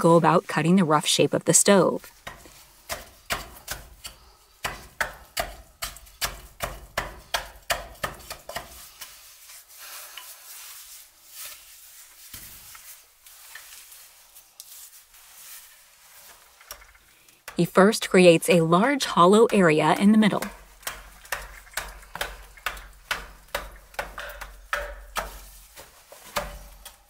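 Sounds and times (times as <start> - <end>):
pick-hammer chopping stone: 2.2 - 8.8, 19.4 - 25.4.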